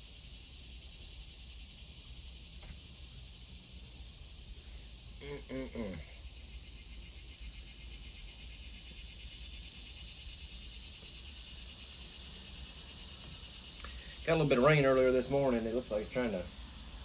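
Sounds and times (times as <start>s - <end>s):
crickets chirring: 0.0s - 17.0s
low vocal murmur: 5.2s - 6.2s.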